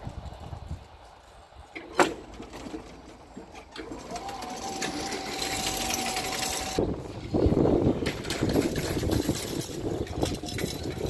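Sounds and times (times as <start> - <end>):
electric motor whine: 4.1 - 6.8.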